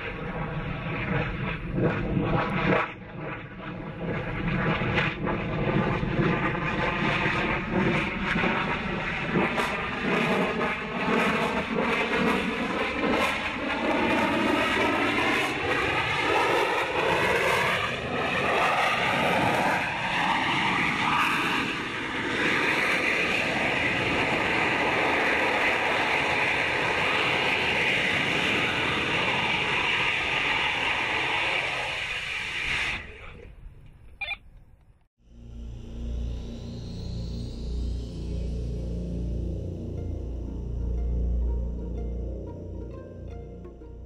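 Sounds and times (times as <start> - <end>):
rocket engine roaring: 0.0 - 34.4.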